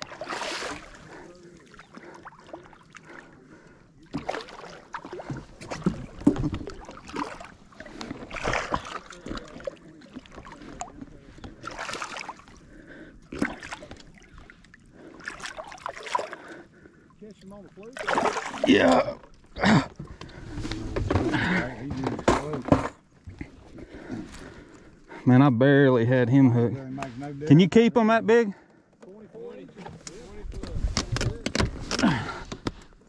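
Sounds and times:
water splashing: 0.0s - 22.5s.

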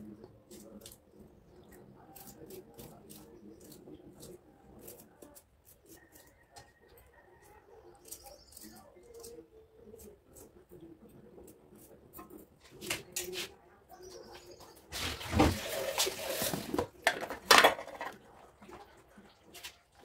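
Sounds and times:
small bird chirping: 5.9s - 10.2s, 13.9s - 14.9s.

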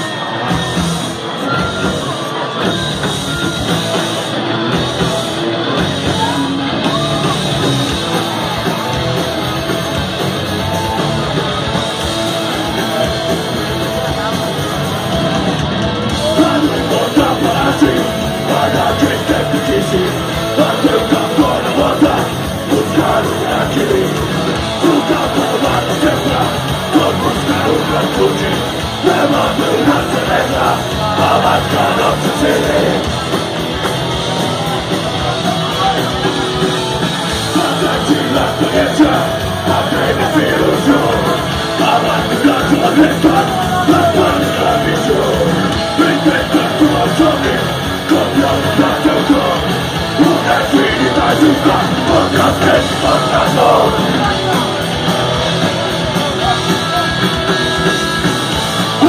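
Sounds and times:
rock band playing live: 0.0s - 59.0s
shouted singing: 16.1s - 59.0s.

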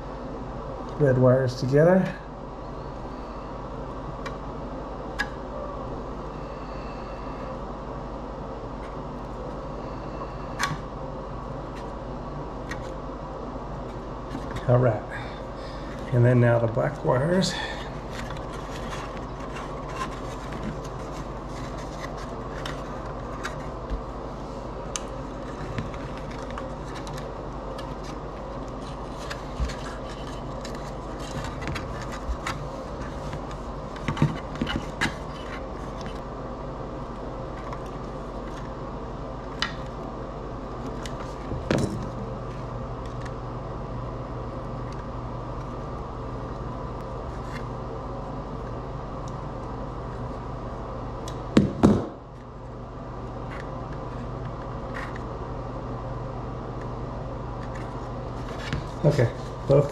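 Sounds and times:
steady low hum: 0.0s - 59.9s
hands handling wires and plastic: 17.8s - 24.2s, 24.8s - 36.2s.

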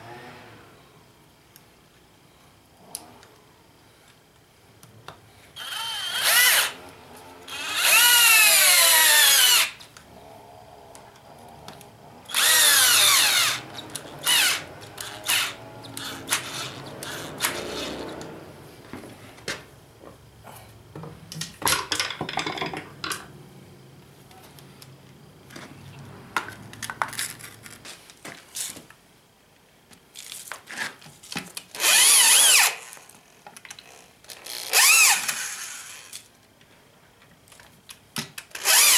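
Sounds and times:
power drill driving screws: 5.6s - 6.8s, 7.5s - 9.8s, 12.3s - 18.3s, 31.8s - 33.0s, 34.4s - 36.2s, 38.5s - 38.9s.

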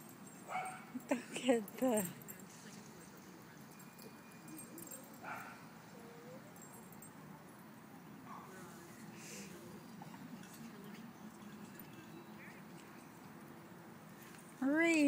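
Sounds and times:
distant dog yipping: 0.5s - 0.9s, 4.5s - 6.9s.

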